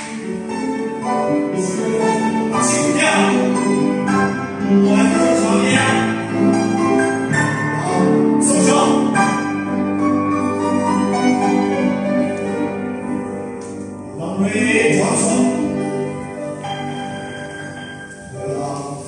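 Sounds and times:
ballet class piano music: 0.0 - 19.0.

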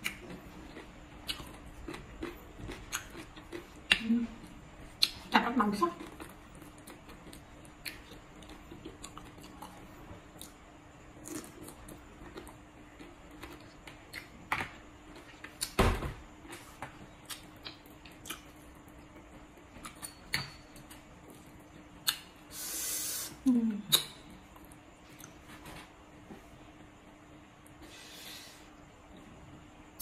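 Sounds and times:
soft chewing: 0.0 - 5.3, 5.9 - 10.6
breathy hiss: 22.5 - 23.5, 27.8 - 28.8.

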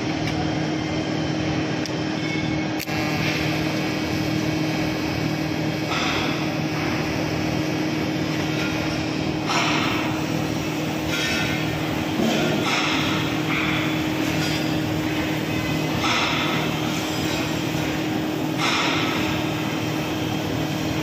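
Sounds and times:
welding arc hum and hiss: 0.0 - 21.0
welder click: 2.8 - 6.4.

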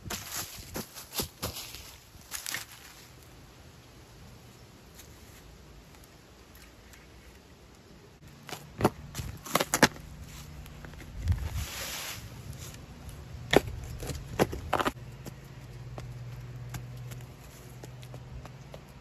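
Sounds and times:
soil scraping rush: 8.5 - 15.0.

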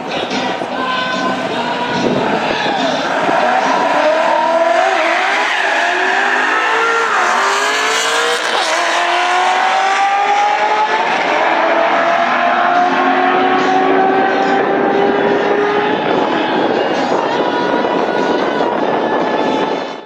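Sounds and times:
car engines revving through gears: 2.0 - 16.8.

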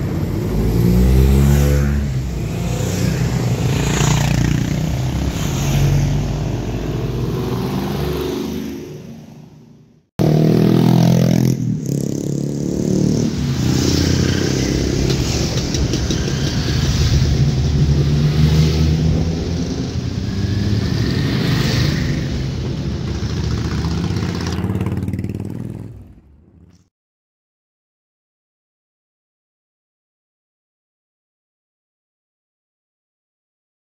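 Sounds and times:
motorcycles riding past: 0.0 - 26.8.

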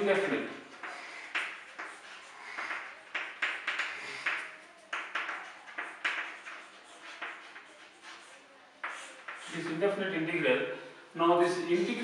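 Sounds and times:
chalk scratching on chalkboard: 0.0 - 10.0.

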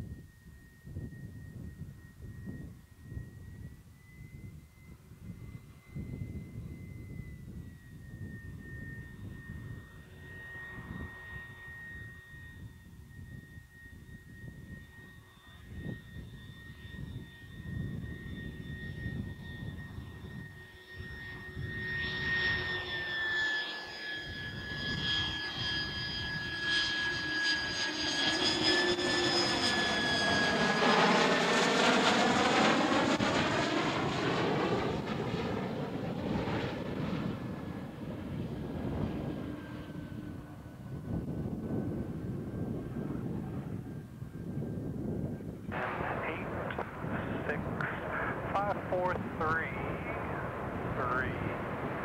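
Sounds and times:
jet engine whine passing: 0.0 - 52.0.

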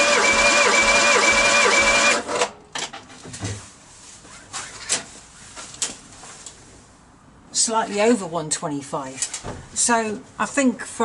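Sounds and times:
engine cranking on starter motor: 0.0 - 2.6.

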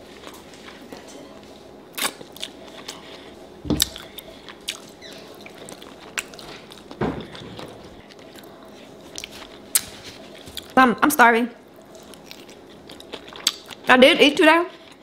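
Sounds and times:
wet chewing: 1.9 - 10.8, 11.8 - 13.9.

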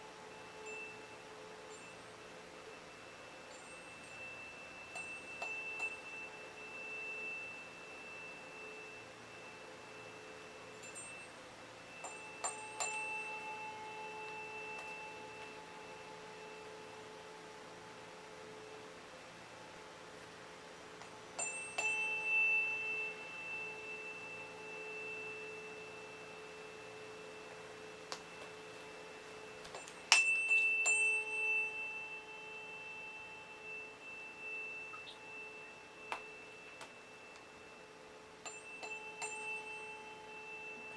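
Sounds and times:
tuning fork ringing: 0.0 - 40.9
tuning fork strike click: 21.4 - 40.9.

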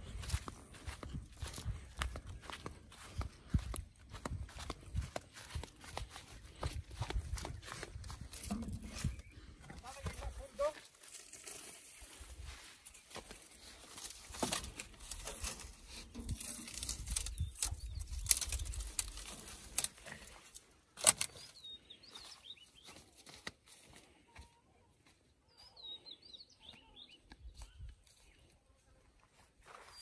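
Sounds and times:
birds chirping: 0.0 - 10.8, 15.9 - 23.4, 25.2 - 28.8
twigs crackling and snapping: 13.1 - 21.5, 22.9 - 23.9.

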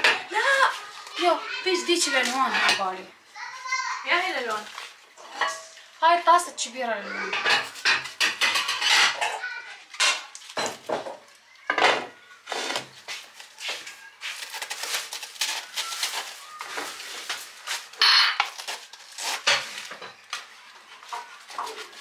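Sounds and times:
lettuce leaves cracking and tearing: 4.6 - 5.0, 12.7 - 22.0.

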